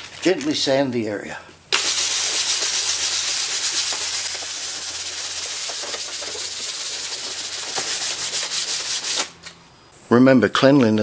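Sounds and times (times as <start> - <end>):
sandpaper scratching on plastic: 1.8 - 9.4.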